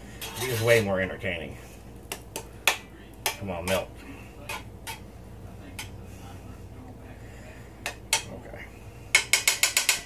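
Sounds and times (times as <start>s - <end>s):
metal spoon clinking on skillet: 9.1s - 10.0s.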